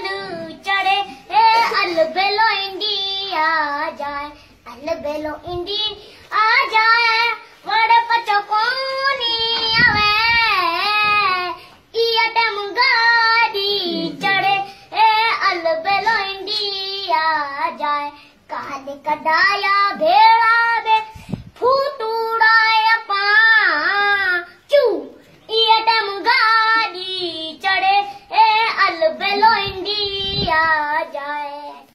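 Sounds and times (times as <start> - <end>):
boy singing unaccompanied: 0.0 - 31.9
boy breathing: 21.1 - 21.6.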